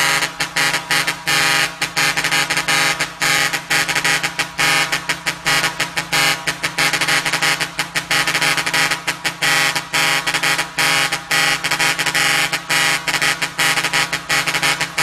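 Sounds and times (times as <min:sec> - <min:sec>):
air horn playing a tune: 0:00.0 - 0:15.0.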